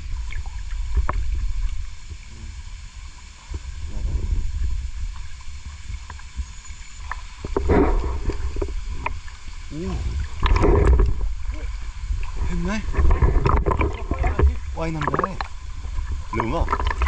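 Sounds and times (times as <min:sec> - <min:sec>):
low rumble: 0:00.0 - 0:06.6, 0:07.5 - 0:17.0
river water sloshing and lapping: 0:00.0 - 0:17.0
small water splashes: 0:00.0 - 0:17.0.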